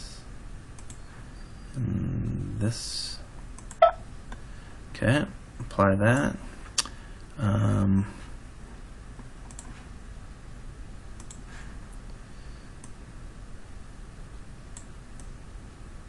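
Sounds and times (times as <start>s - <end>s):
computer mouse clicks: 0.8s - 1.0s, 3.6s - 3.9s, 9.4s - 9.8s, 11.2s - 11.5s
microphone hiss: 1.7s - 16.0s.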